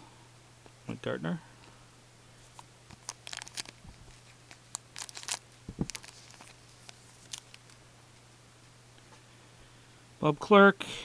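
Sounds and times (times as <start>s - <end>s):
trading cards rustling and clicking: 2.5s - 7.8s
dull thump: 5.7s - 6.0s.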